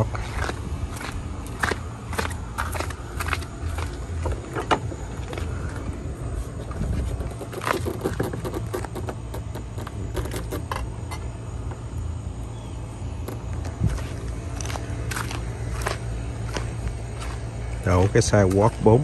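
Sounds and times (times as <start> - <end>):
footsteps on concrete: 0.0 - 8.2, 13.2 - 19.0
steady low rumble: 0.0 - 19.0
clicks and scrapes: 6.9 - 11.2.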